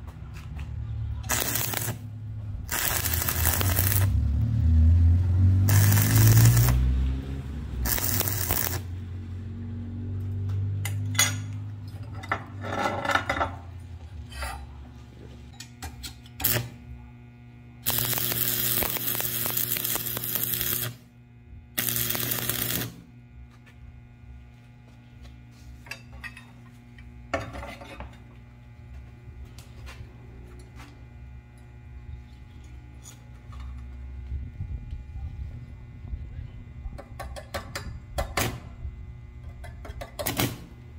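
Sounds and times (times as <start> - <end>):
electrical hum: 0.0 - 40.9
arc welder crackling and sizzling: 0.5 - 10.8, 15.6 - 26.0, 30.6 - 35.1, 38.2 - 40.9.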